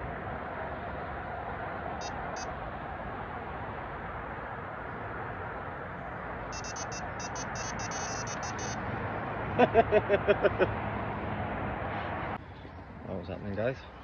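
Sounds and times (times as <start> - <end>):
electronic alarm beeping: 2.0 - 2.5, 6.5 - 8.8.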